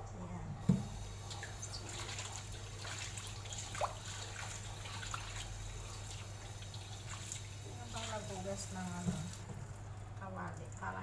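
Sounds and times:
tap water splashing into metal wok: 0:09.0 - 0:09.7.

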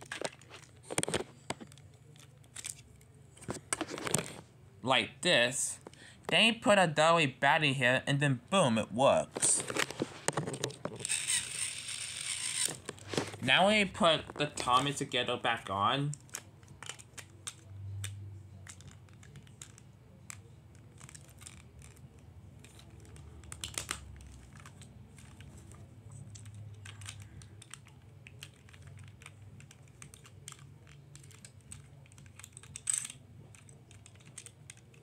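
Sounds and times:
plastic parts clicking and tapping: 0:00.0 - 0:04.4, 0:09.4 - 0:11.6, 0:12.4 - 0:35.0
plastic clatter: 0:00.0 - 0:04.5, 0:09.4 - 0:11.4.

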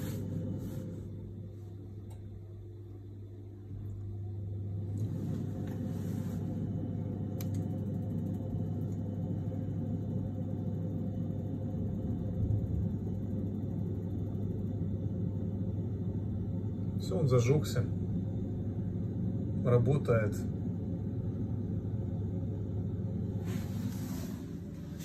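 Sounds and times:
constant low hum: 0:00.0 - 0:25.0
gas boiler running: 0:00.0 - 0:25.0.

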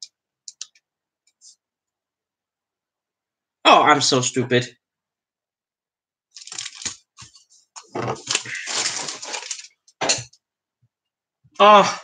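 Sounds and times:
plastic sprues clattering: 0:06.4 - 0:09.8.

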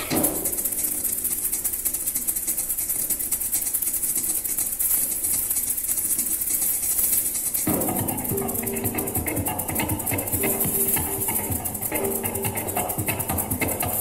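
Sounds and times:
maracas shaking: 0:00.0 - 0:14.0
loud instrument sound: 0:07.7 - 0:14.0.

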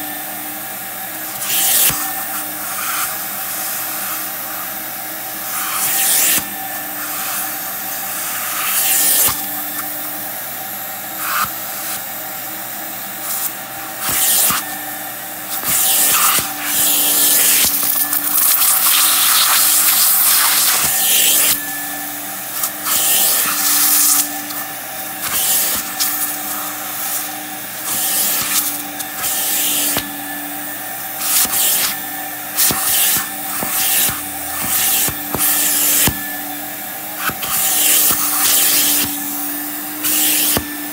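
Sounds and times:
carpet extractor motor whine: 0:00.0 - 0:40.9
suction hiss: 0:22.4 - 0:30.2, 0:31.0 - 0:36.5.

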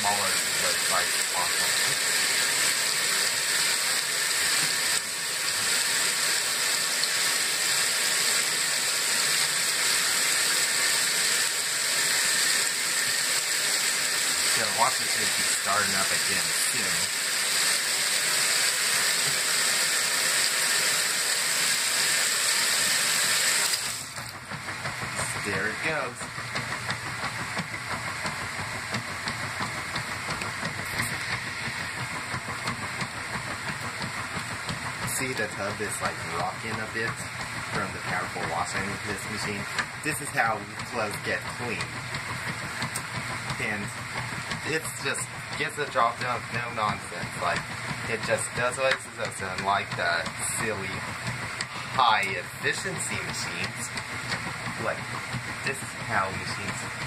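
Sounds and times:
water pouring into washer tub: 0:00.0 - 0:24.3
washing machine agitator sloshing: 0:00.0 - 0:57.0
washing machine motor running: 0:00.0 - 0:57.0.

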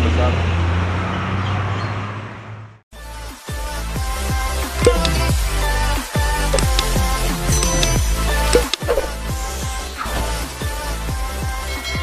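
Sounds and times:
electronic music with bass beat: 0:03.2 - 0:12.0.

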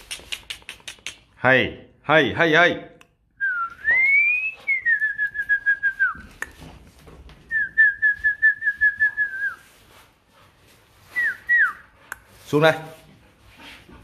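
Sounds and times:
person whistling: 0:03.4 - 0:06.6, 0:07.5 - 0:09.6, 0:11.1 - 0:11.9.

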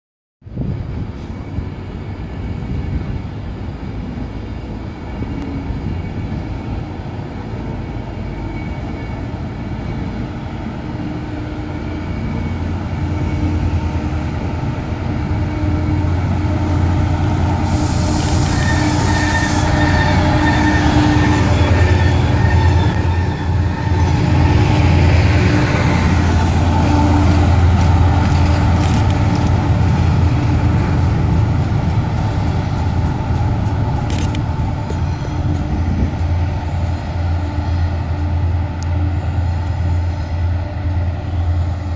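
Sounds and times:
diesel locomotive engines drumming: 0:00.5 - 0:41.9
wagon wheels squealing: 0:17.5 - 0:25.0
short high hiss: 0:17.6 - 0:19.8.

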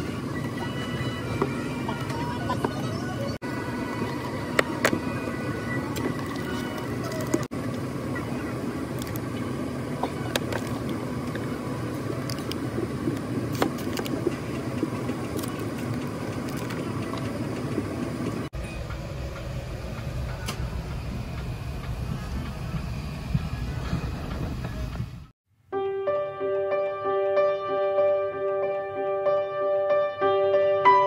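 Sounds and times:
airliner cabin rumble: 0:00.0 - 0:25.4.

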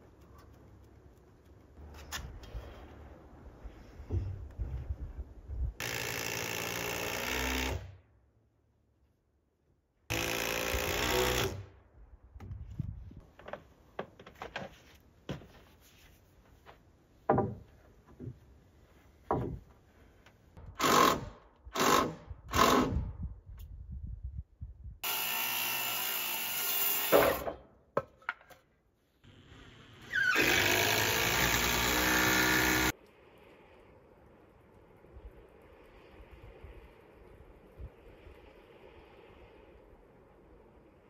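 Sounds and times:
power drill running: 0:10.1 - 0:11.6, 0:25.0 - 0:27.1, 0:30.0 - 0:32.9.

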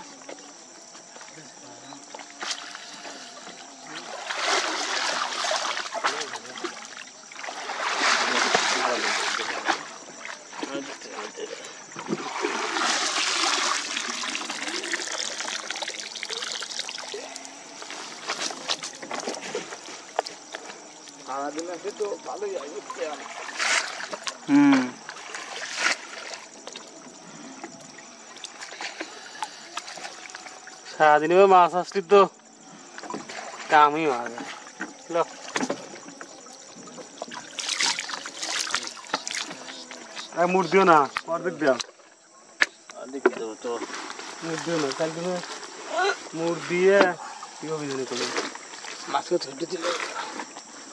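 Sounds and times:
water splashing and trickling: 0:00.0 - 0:42.2, 0:42.9 - 0:50.9
short vocal sound: 0:24.4 - 0:25.0.

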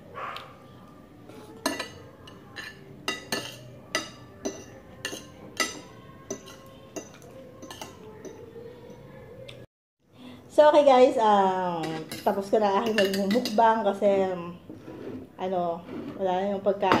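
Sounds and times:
cutlery clinking on a plate: 0:01.5 - 0:09.0, 0:11.8 - 0:13.7.

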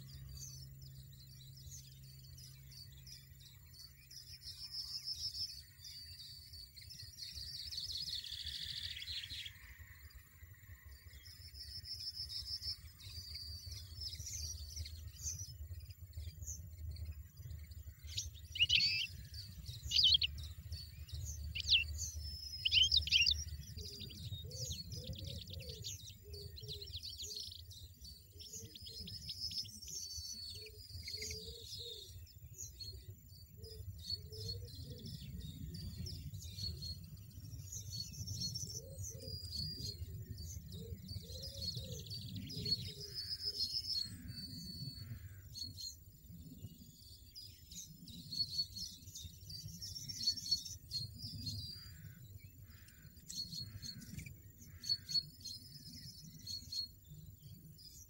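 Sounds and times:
sharp bird calls: 0:00.0 - 0:32.3, 0:48.6 - 0:57.3
nestlings chirping and twittering: 0:00.0 - 0:58.0.

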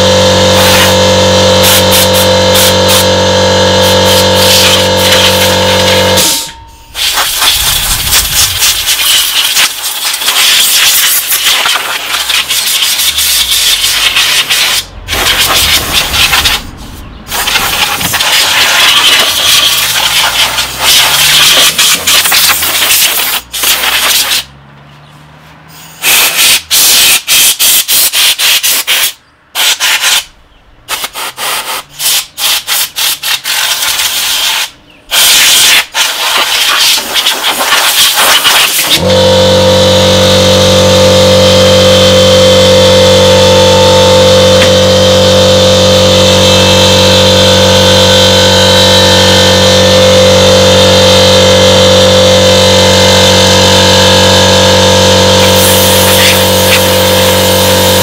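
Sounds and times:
air compressor motor humming: 0:00.0 - 0:24.4, 0:38.8 - 0:58.0
compressed air hissing from nozzle: 0:06.2 - 0:21.4, 0:26.0 - 0:30.3, 0:30.9 - 0:38.8.

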